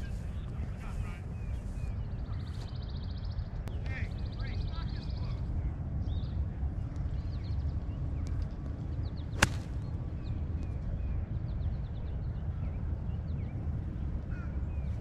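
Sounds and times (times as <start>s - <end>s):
steady low rumble: 0.0s - 15.0s
golf club striking ball: 9.4s - 9.8s.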